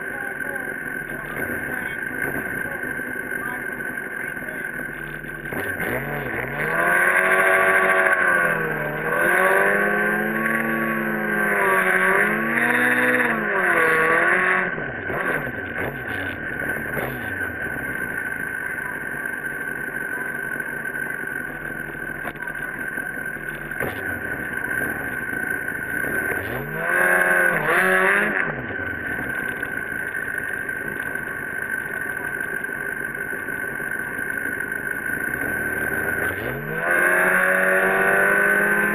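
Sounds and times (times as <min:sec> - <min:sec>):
motorcycle engine revving: 0:00.0 - 0:38.9.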